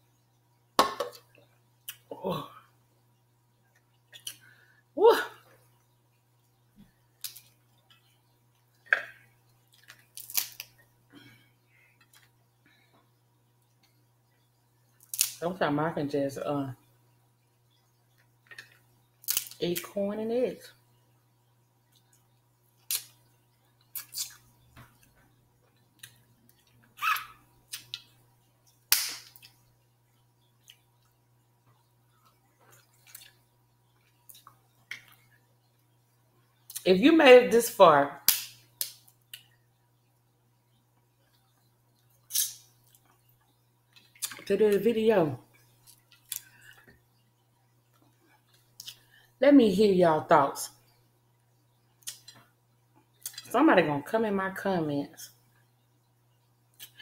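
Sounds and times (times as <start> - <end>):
crab shells cracking: 9.8 - 10.8, 15.0 - 15.4, 18.4 - 19.6.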